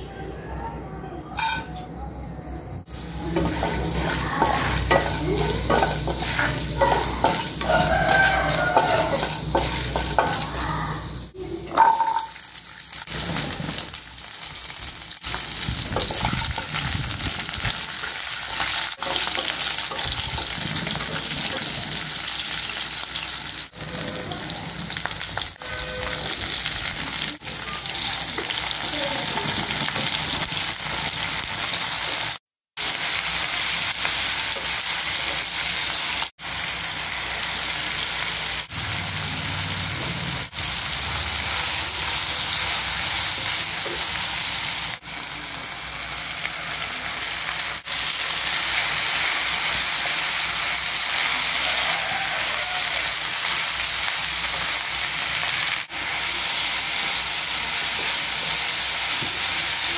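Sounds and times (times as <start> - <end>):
hot oil sizzling: 2.7 - 59.9
wooden spatula stirring and scraping: 3.3 - 10.6.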